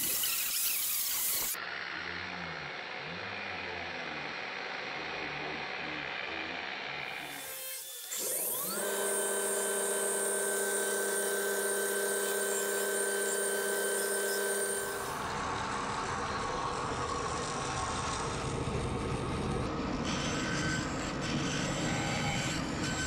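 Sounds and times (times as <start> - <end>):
bandsaw running: 0.0 - 1.6, 7.1 - 18.4
belt grinder motor whining: 0.0 - 1.6, 7.1 - 15.6.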